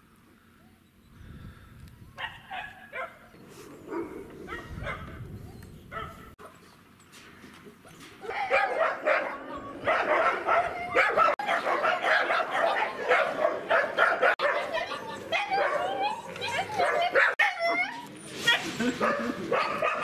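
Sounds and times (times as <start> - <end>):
dogs barking: 2.2 - 5.2, 5.9 - 6.6, 8.2 - 17.9, 18.5 - 20.0.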